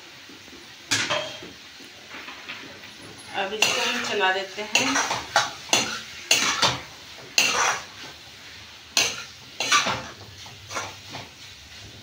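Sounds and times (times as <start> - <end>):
metal spatula scraping a pan: 3.3 - 8.2, 9.0 - 11.5.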